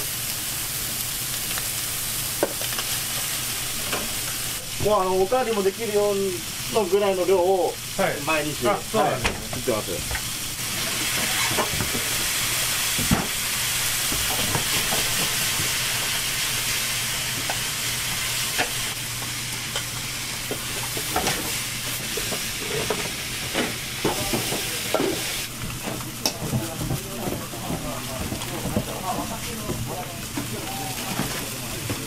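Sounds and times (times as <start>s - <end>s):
noodles sizzling in a frying pan: 0.0s - 32.0s
utensils clicking and scraping pans: 9.2s - 13.4s, 14.0s - 16.1s, 17.4s - 19.0s, 19.7s - 32.0s.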